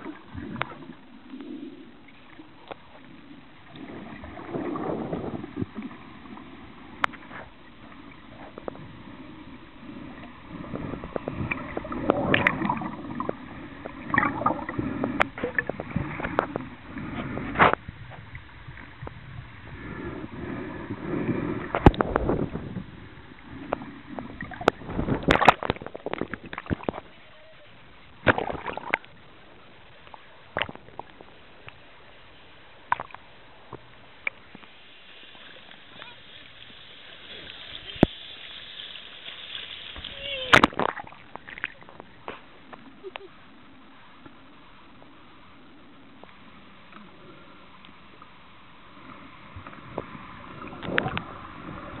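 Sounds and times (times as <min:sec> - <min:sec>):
underwater bubbles and water movement: 0:00.0 - 0:52.0
underwater clicks: 0:11.1 - 0:16.6, 0:21.6 - 0:22.4, 0:23.7 - 0:27.1, 0:28.2 - 0:29.2, 0:30.0 - 0:31.8, 0:32.9 - 0:34.7, 0:50.7 - 0:51.3
burst of water noise: 0:34.2 - 0:42.5
underwater hiss: 0:34.5 - 0:40.2.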